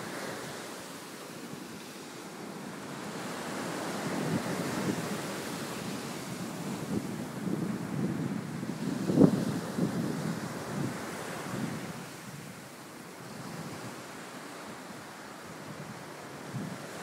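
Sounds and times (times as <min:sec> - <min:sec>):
ocean surf washing: 0:00.0 - 0:17.0
wind buffeting microphone: 0:02.8 - 0:14.0, 0:15.5 - 0:17.0.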